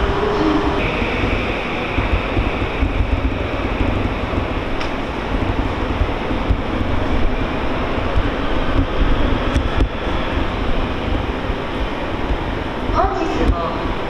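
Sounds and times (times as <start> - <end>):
electric train high hum: 0.0 - 14.0
wind buffeting microphone: 0.0 - 14.0.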